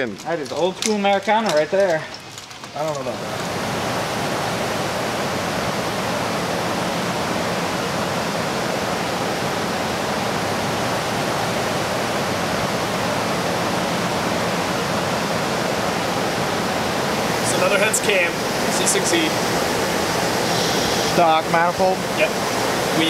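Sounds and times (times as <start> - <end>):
steady rushing noise: 2.8 - 23.0.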